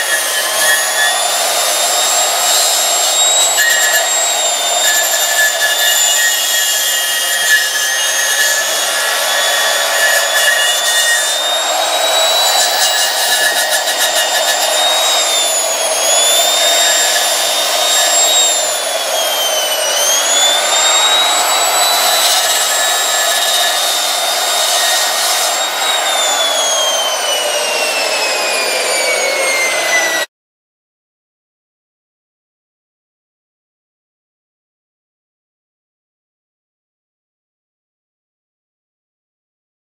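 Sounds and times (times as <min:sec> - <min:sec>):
angle grinder grinding metal: 0:00.0 - 0:30.3.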